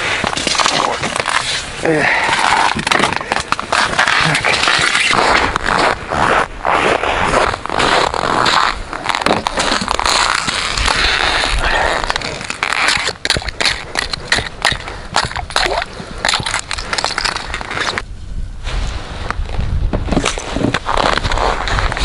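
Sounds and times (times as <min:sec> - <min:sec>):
footsteps crunching on snow: 0:00.2 - 0:18.0, 0:18.7 - 0:22.0.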